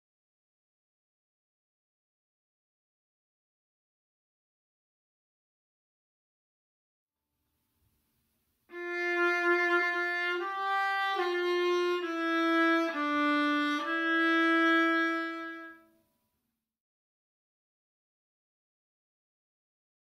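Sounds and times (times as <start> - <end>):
bowed string instrument: 8.7 - 15.9.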